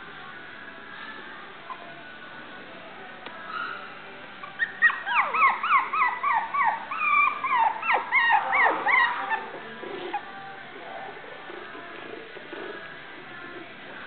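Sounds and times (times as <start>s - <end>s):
puppies yipping and whining: 3.5s - 11.8s.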